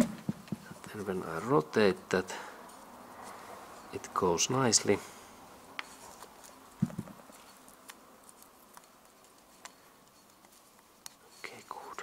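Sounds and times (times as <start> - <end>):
knock: 6.8 - 7.2.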